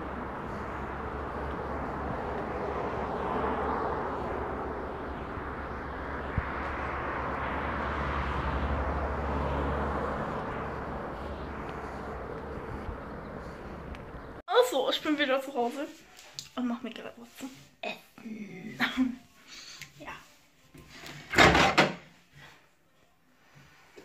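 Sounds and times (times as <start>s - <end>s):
cars passing on road: 0.0s - 14.4s.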